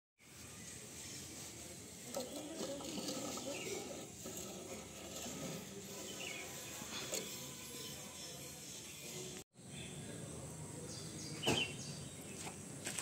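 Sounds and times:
quiet metal scraping: 0:00.4 - 0:09.4.

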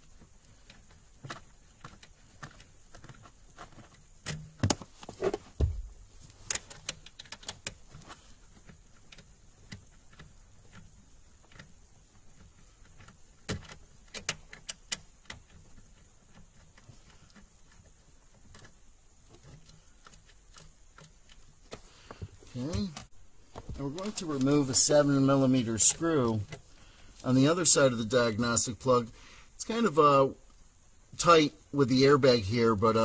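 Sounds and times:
tool knocking on plastic trim: 0:05.6 - 0:05.9.

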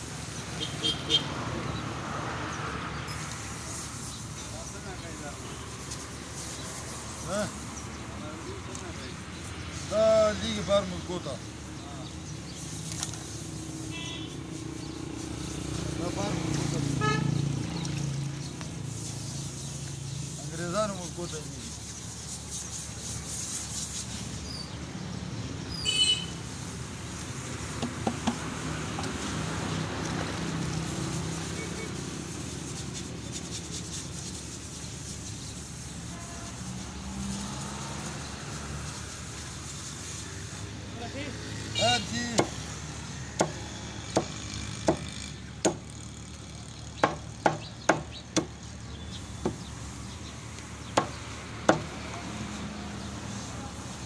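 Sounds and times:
street traffic hum: 0:00.0 - 0:54.0
cleaver chopping on wooden block: 0:27.8 - 0:29.1, 0:42.4 - 0:42.7, 0:43.3 - 0:45.9, 0:47.0 - 0:48.6, 0:49.4 - 0:49.7, 0:50.9 - 0:52.0.

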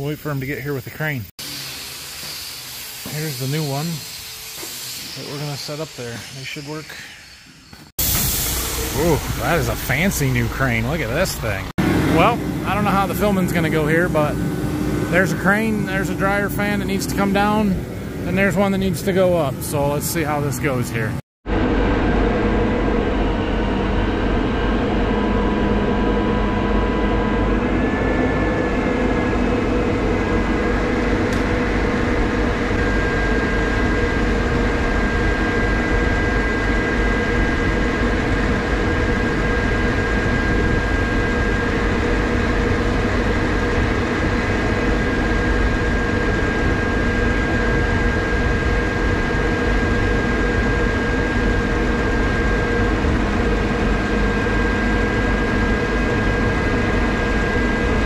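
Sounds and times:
steady high whine: 0:00.0 - 0:58.0
truck engine running: 0:08.0 - 0:18.5.

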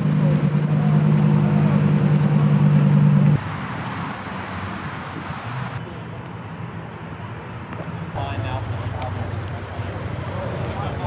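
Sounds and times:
car engine running: 0:00.0 - 0:03.6
crowd voices outdoors: 0:00.0 - 0:11.0.

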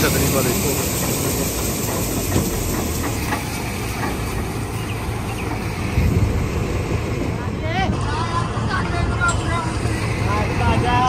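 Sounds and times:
rain falling: 0:00.0 - 0:06.0
engine hum: 0:00.0 - 0:11.0.

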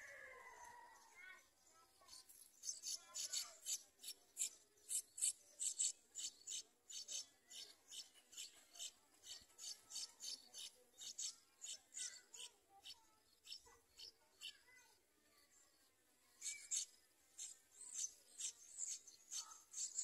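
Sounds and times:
bird nestlings begging calls: 0:02.6 - 0:14.5, 0:16.4 - 0:20.0.

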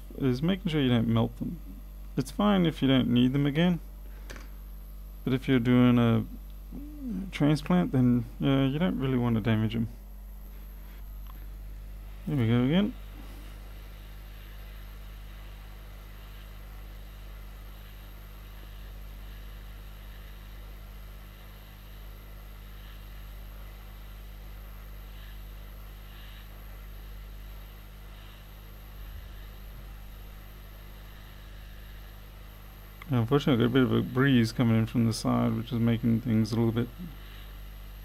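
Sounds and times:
low electrical hum: 0:00.0 - 0:38.0
hot air blower hissing: 0:12.2 - 0:38.0.

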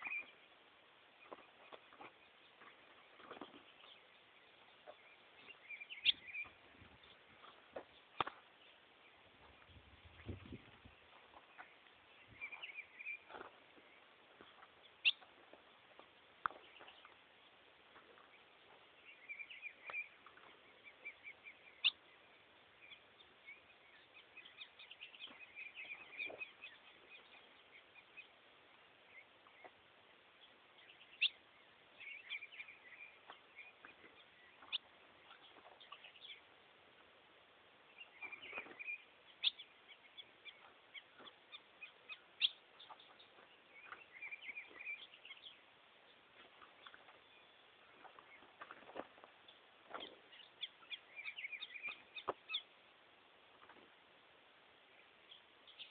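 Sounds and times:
bird singing chirpy notes: 0:00.0 - 0:00.5, 0:03.7 - 0:10.8, 0:11.5 - 0:14.1, 0:19.0 - 0:28.4, 0:30.4 - 0:36.5, 0:37.9 - 0:46.2, 0:50.2 - 0:52.8.

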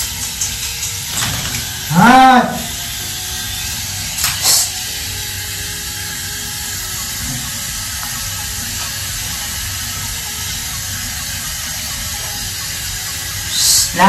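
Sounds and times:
shower head spraying water: 0:00.0 - 0:14.0.

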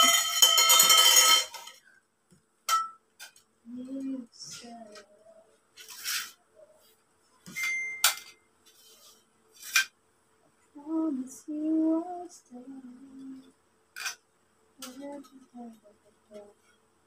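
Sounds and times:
woman singing low notes: 0:03.6 - 0:05.5, 0:10.7 - 0:13.5, 0:14.8 - 0:16.6.

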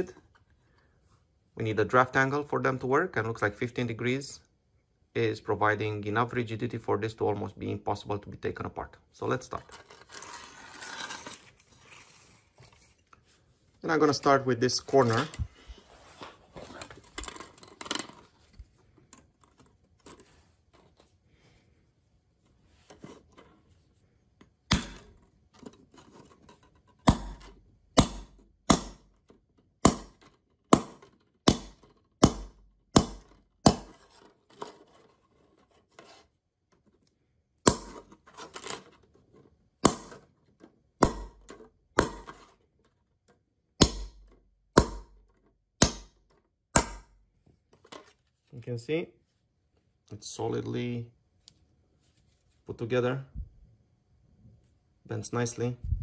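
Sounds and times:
plastic handling: 0:09.2 - 0:21.4
hammer knocking plastic tiles: 0:26.6 - 0:34.8, 0:41.0 - 0:42.5.

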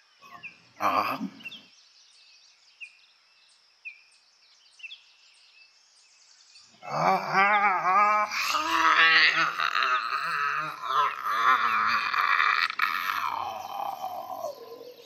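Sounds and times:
faint bird chirps: 0:00.0 - 0:07.6
person crying out: 0:06.8 - 0:15.0.

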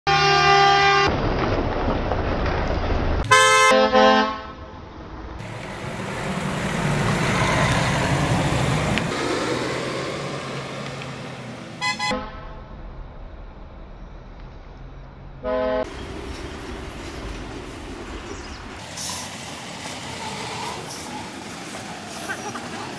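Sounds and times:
vehicle horns honking: 0:00.1 - 0:01.1, 0:03.2 - 0:04.6, 0:11.8 - 0:12.7, 0:15.4 - 0:15.9
passing vehicle engine and tyres: 0:01.0 - 0:22.9.

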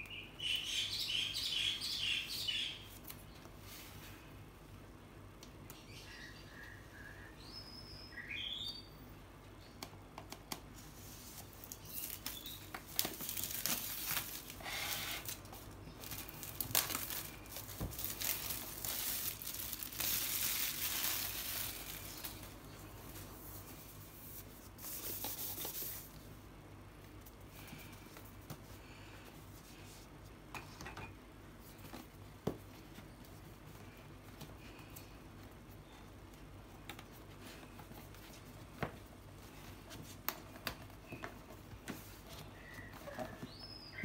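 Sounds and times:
plastic shrink-wrap tearing: 0:11.6 - 0:22.5.

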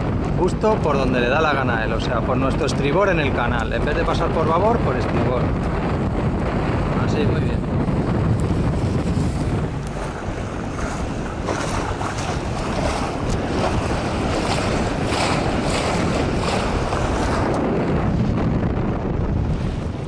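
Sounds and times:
water rushing along hull: 0:00.0 - 0:20.0
wind buffeting microphone: 0:00.0 - 0:20.0
water splashes: 0:08.4 - 0:18.4.

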